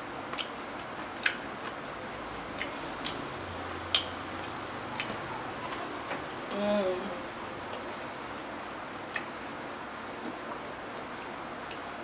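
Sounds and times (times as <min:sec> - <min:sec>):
mouth clicks: 0:01.2 - 0:01.5, 0:03.9 - 0:05.2, 0:09.1 - 0:09.4.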